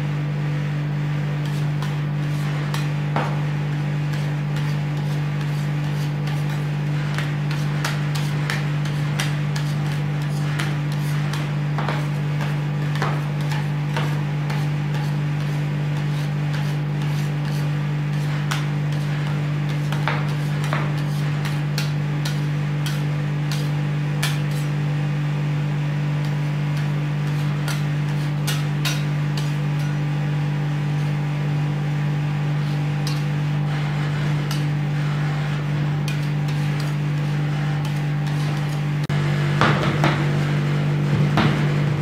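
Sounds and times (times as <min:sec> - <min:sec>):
steady low hum: 0:00.0 - 0:42.0
metal spatulas scraping steel plate: 0:04.1 - 0:24.8, 0:26.2 - 0:30.2, 0:32.6 - 0:35.4, 0:36.0 - 0:38.8.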